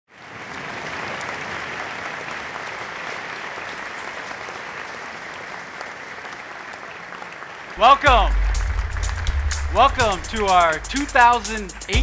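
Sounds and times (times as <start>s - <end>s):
audience applauding: 0.1s - 12.0s.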